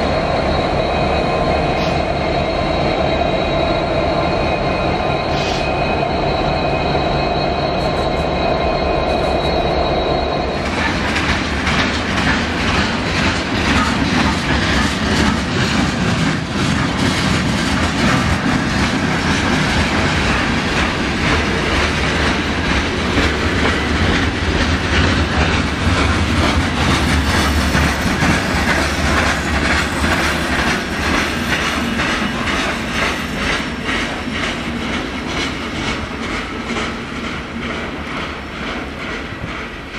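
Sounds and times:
high wheel squeal: 0.0 - 36.6
freight train wheels rumbling: 0.0 - 39.9
wheels clacking over rail joints: 10.6 - 39.9.

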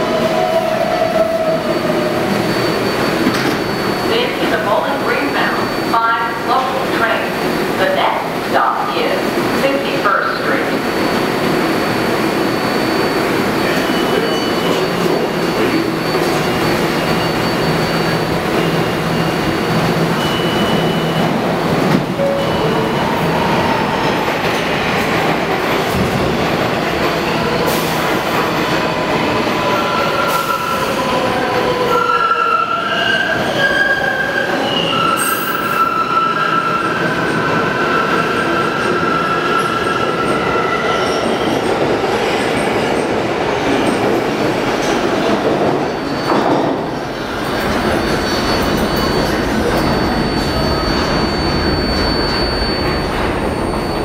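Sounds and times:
whining train propulsion tones: 0.0 - 43.1
subway train pulling out: 0.0 - 54.0
wheel squeal: 0.4 - 4.1, 11.6 - 21.2, 45.9 - 54.0.

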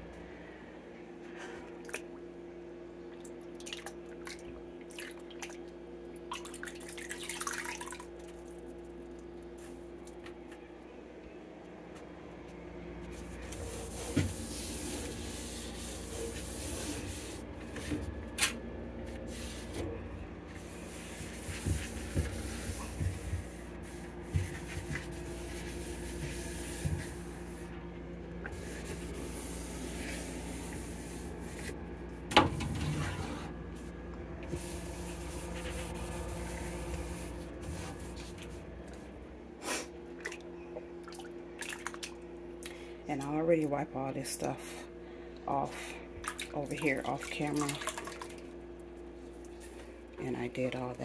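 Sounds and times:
steady low hum: 0.0 - 51.0
wet cloth wiping: 13.1 - 18.0, 19.1 - 19.8, 20.5 - 27.8, 28.4 - 31.8, 34.5 - 38.6.

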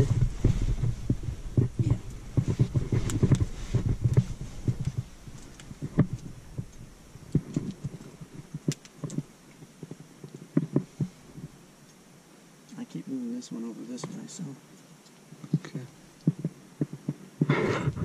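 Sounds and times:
rope clicks and knocks: 0.0 - 11.6, 15.4 - 18.0
rope handling rumble: 0.0 - 11.6.

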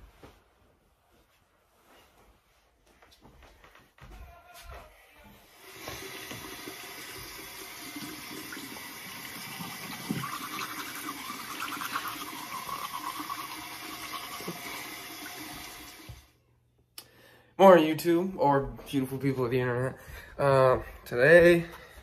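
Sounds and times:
water running: 5.5 - 16.4.

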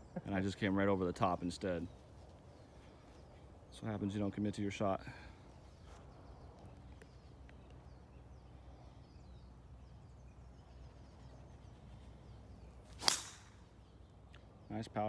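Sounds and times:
birds chirping: 0.0 - 15.0
low background noise: 0.0 - 15.0.

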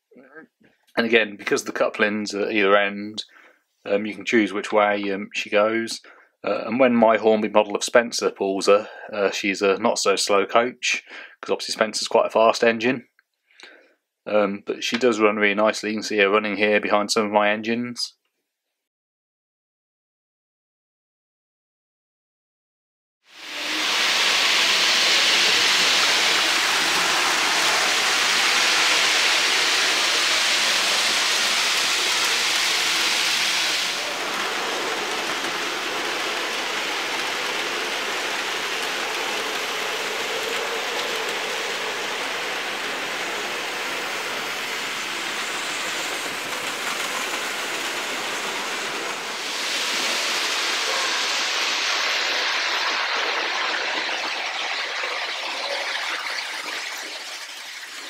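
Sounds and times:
model trains whirring on track: 23.3 - 58.0.

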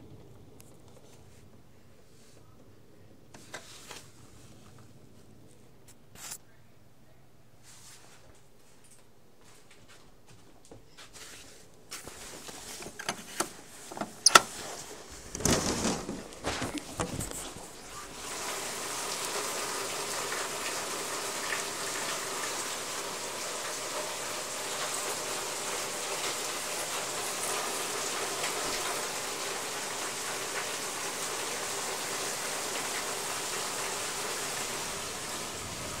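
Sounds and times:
heavy rain pouring: 14.6 - 36.0.

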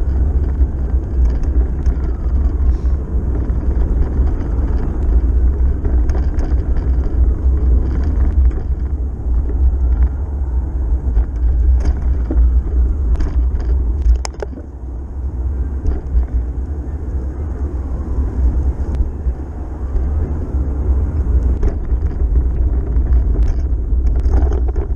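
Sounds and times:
light clicks and rattles: 0.0 - 14.7, 21.1 - 24.9
road rumble: 0.0 - 24.9
wind on microphone: 0.0 - 24.9.

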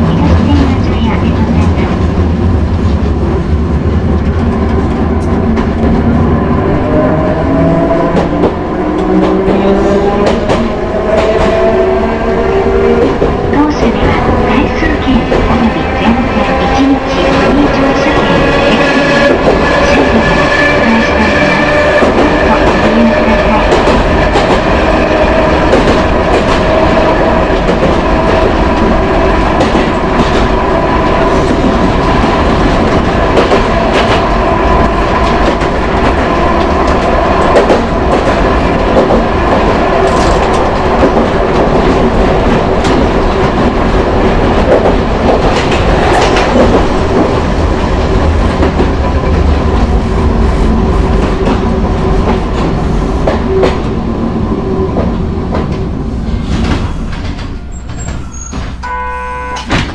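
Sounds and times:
rail joint clicks: 7.8 - 11.8, 31.4 - 49.9, 50.7 - 54.0, 54.9 - 59.9.

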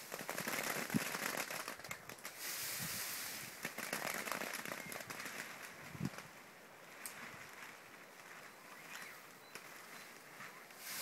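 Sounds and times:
plastic sheeting rustling: 0.0 - 11.0
hiss: 2.3 - 3.6, 10.8 - 11.0.

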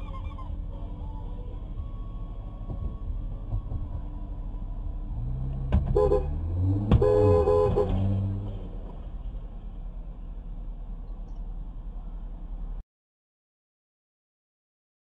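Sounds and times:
traffic noise: 0.0 - 12.8
car horn honking: 5.8 - 8.5.

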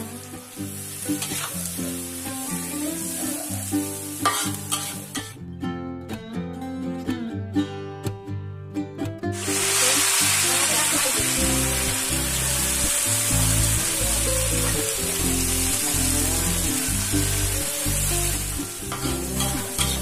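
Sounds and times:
food sizzling in a pan: 0.0 - 5.4, 9.4 - 20.0.

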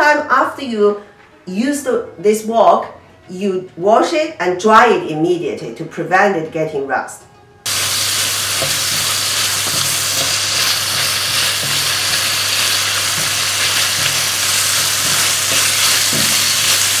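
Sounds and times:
meat sizzling in a wok: 7.7 - 17.0
spatula stirring knocks: 8.6 - 17.0.

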